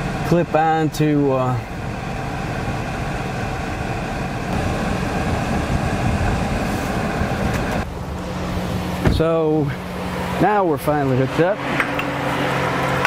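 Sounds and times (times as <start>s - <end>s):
low steady hum: 0.0s - 13.0s
vehicle engine idling: 0.0s - 13.0s.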